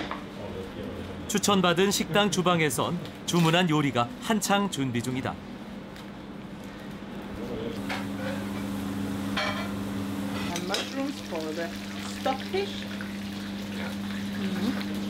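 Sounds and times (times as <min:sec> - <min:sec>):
steady low hum: 0:05.3 - 0:10.7
mushrooms sizzling in oil: 0:07.8 - 0:15.0.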